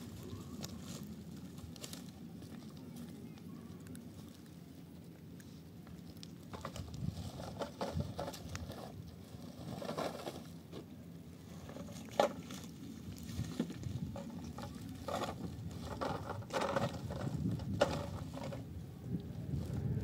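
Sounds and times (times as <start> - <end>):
footsteps crunching on stony ground: 0.0 - 4.7
low steady rumble: 0.0 - 20.0.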